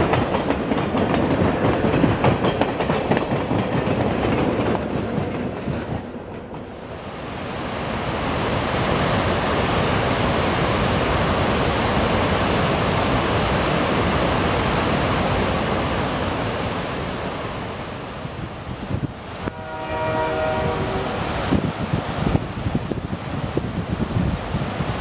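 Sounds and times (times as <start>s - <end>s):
waterfall rushing: 6.7s - 19.5s, 20.6s - 25.0s.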